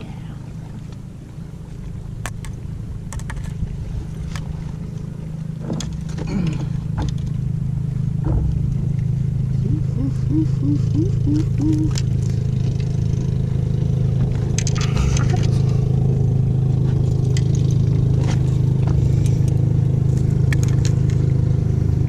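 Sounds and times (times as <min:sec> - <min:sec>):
boat engine droning: 0:00.0 - 0:22.0.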